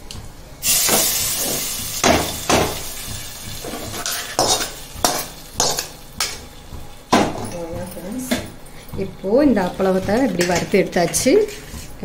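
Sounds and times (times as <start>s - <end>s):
sizzling: 0.0s - 12.0s
ladle scraping and knocking pan: 1.3s - 7.4s.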